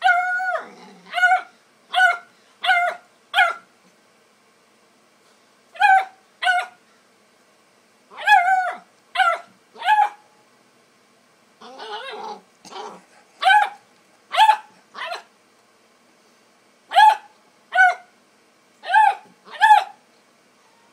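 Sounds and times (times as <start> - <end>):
puppy barking: 0.0 - 3.7, 5.8 - 6.8, 8.1 - 10.2, 11.7 - 15.3, 16.9 - 18.1, 18.8 - 20.0
dog growling: 0.3 - 1.2, 11.6 - 13.4.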